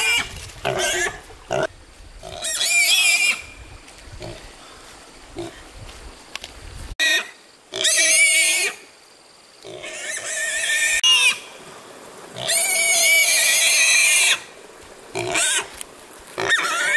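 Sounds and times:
pig squealing: 2.3s - 3.5s, 7.0s - 8.8s, 9.8s - 11.5s, 12.4s - 14.5s, 15.2s - 15.7s, 16.4s - 16.9s.

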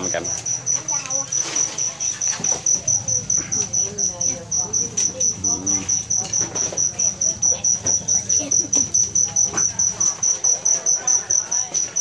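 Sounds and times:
faint voices: 0.0s - 12.0s.

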